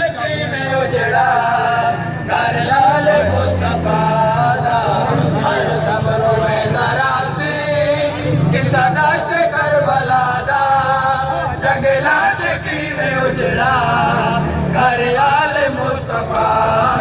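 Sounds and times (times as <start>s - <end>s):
men singing a lament in chorus: 0.0s - 17.0s.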